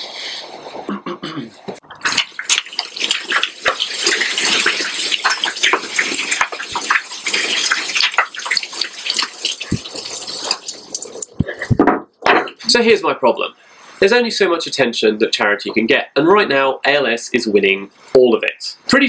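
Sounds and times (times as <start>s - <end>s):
water draining: 1.8s - 11.7s
ice water pouring and splashing: 1.9s - 11.4s.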